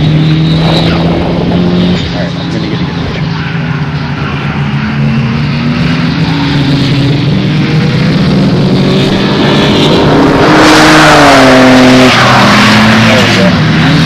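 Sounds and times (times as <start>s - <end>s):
car engine at full throttle: 0.0s - 14.0s.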